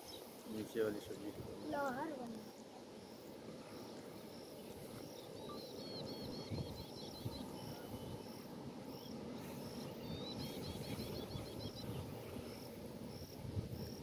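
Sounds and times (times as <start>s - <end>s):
insects chirping: 0.0s - 14.0s
bird chirping: 3.8s - 12.1s.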